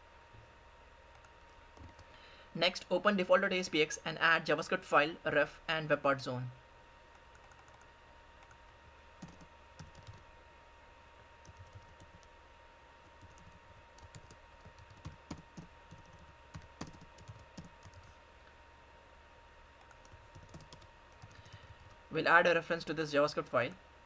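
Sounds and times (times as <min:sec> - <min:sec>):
computer keyboard typing: 0:01.1 - 0:02.1, 0:07.1 - 0:08.6, 0:09.2 - 0:10.2, 0:11.4 - 0:12.3, 0:13.0 - 0:18.1, 0:19.8 - 0:22.0.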